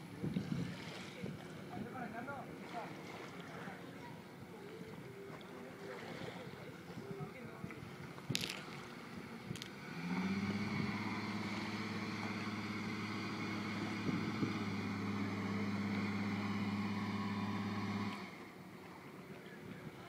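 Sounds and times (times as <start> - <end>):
car engine under load: 8.7 - 18.6.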